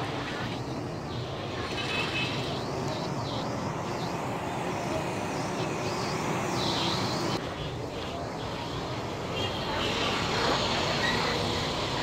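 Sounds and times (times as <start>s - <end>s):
road traffic hum: 0.0s - 12.0s.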